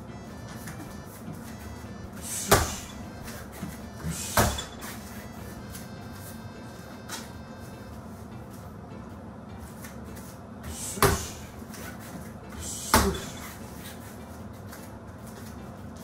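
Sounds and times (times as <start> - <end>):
steady low hum: 0.0 - 16.0
sharp thuds: 2.4 - 3.0.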